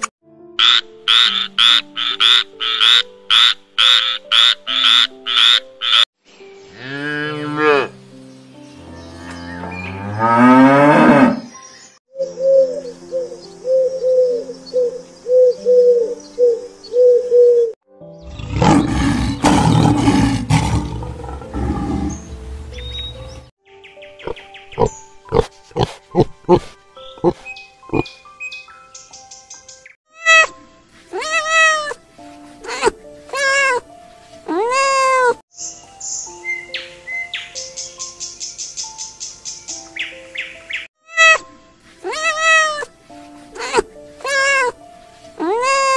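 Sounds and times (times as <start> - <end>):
background music: 0.0 - 45.9
lion roaring: 18.3 - 22.2.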